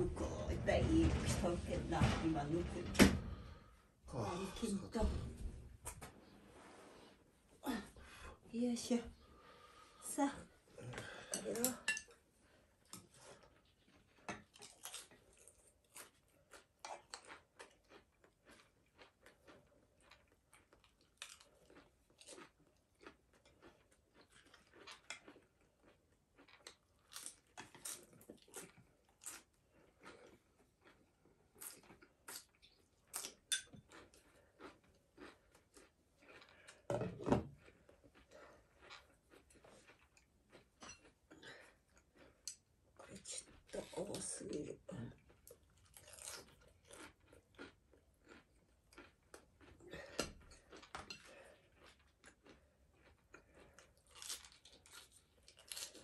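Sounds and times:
chewing: 0:12.8 - 0:36.9, 0:37.5 - 0:44.5, 0:45.1 - 0:56.0.

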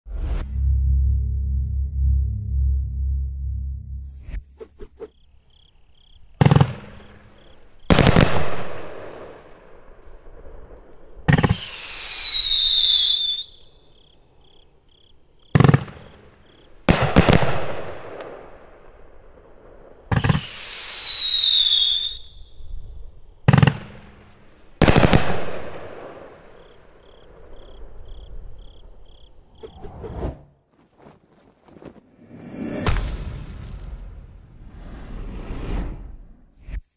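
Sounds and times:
falling firework whistle: 0:11.3 - 0:13.8, 0:20.1 - 0:22.8.

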